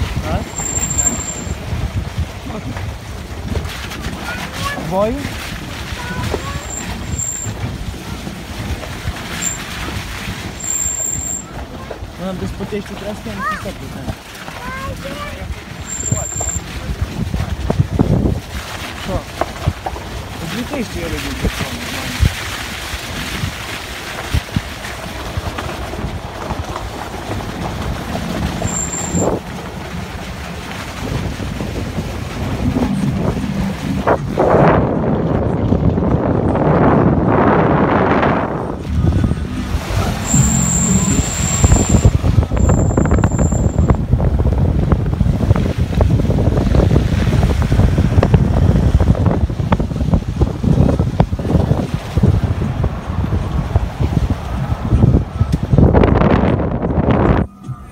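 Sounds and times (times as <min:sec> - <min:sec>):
truck rumbling: 0:00.0 - 0:57.9
wind buffeting microphone: 0:00.0 - 0:57.9
pickup engine running: 0:23.0 - 0:57.9
high steady whistle: 0:40.2 - 0:42.1.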